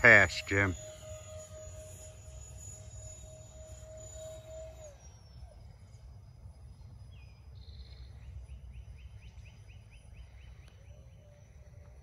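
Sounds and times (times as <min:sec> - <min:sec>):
distant electric fan whine: 0:00.0 - 0:12.0.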